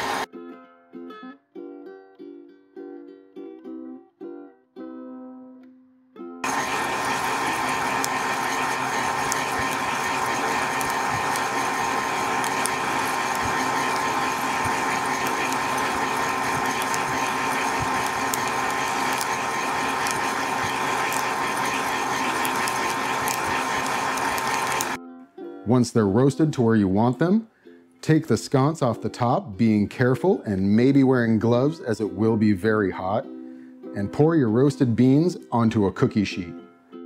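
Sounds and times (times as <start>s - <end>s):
popcorn popper fan whirring: 0.0s - 0.3s, 6.4s - 25.0s.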